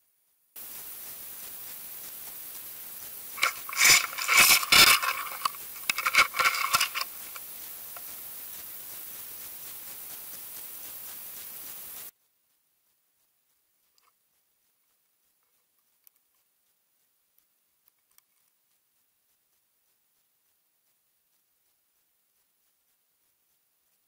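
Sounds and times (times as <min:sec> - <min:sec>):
camera knocking and scraping on sand: 0:00.6 - 0:12.1
underwater hiss: 0:00.6 - 0:12.1.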